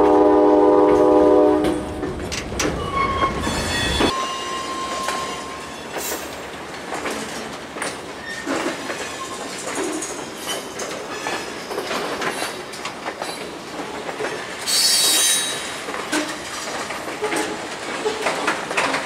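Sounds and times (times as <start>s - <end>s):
freight train wheels rattling: 0.0s - 19.0s
high-pitched wheel squeal: 2.8s - 6.1s.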